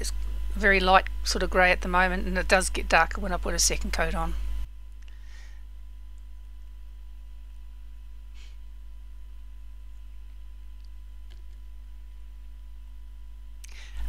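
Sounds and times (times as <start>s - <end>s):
faint constant whine: 0.0s - 14.0s
steady low hum: 0.0s - 14.0s.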